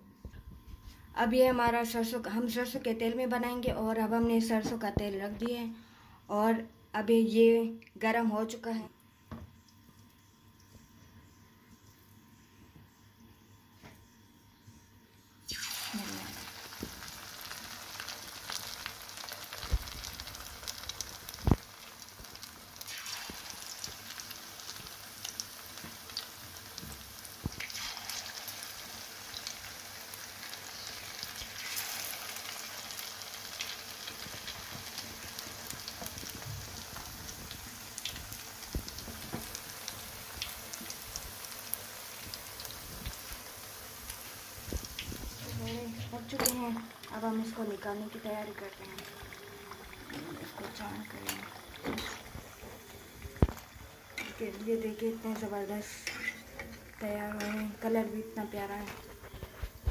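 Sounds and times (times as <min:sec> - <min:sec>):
batter sizzling in hot oil: 0:15.4 - 0:59.9
sharp pops of frying oil: 0:15.5 - 0:17.2, 0:17.9 - 0:28.6, 0:33.0 - 0:47.1, 0:50.6 - 0:52.5, 0:53.2 - 0:57.8.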